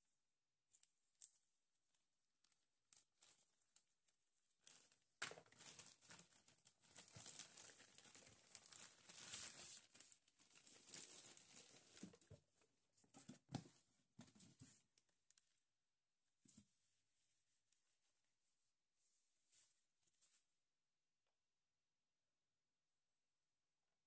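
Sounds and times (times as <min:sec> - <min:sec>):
plastic wrapping crinkling: 0:04.6 - 0:12.4.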